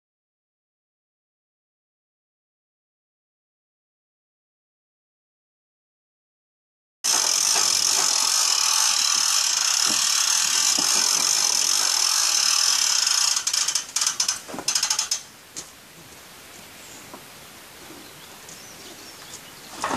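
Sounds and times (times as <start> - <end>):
power drill whining: 7.1 - 15.2.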